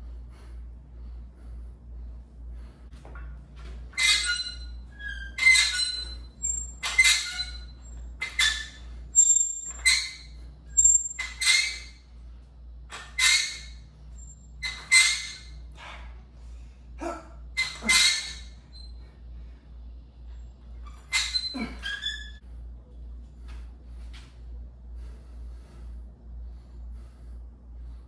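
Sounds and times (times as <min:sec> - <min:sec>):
man breathing forcefully: 0:00.0 - 0:03.1, 0:23.3 - 0:28.0
low steady hum: 0:00.0 - 0:28.0.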